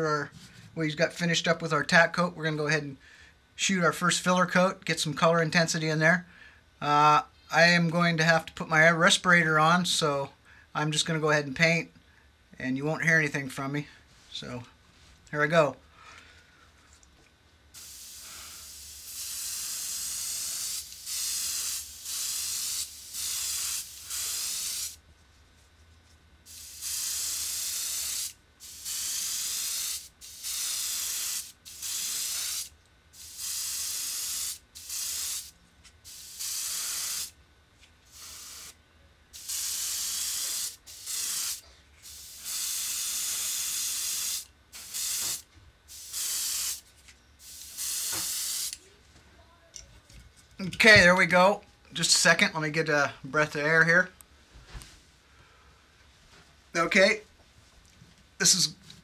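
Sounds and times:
airbrush hissing: 0:17.7 - 0:25.0, 0:26.5 - 0:37.4, 0:38.1 - 0:38.8, 0:39.4 - 0:46.8, 0:47.4 - 0:48.8.

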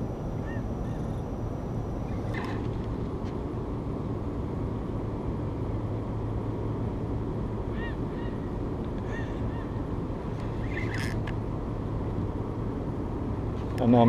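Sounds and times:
low hum and rumble: 0:00.0 - 0:14.0
short bird calls: 0:07.7 - 0:09.8.

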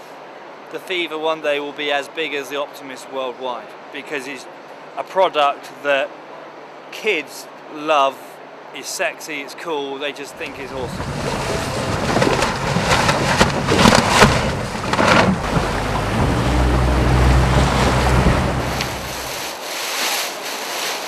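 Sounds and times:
water rushing and splashing: 0:10.2 - 0:20.5
wind buffeting microphone: 0:10.4 - 0:19.5.

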